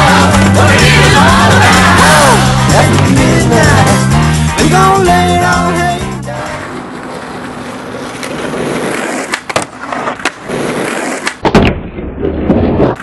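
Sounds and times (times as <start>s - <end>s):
skateboard wheels rolling on asphalt: 5.0s - 11.5s
skateboard scraping along wooden ledge: 6.4s - 11.4s.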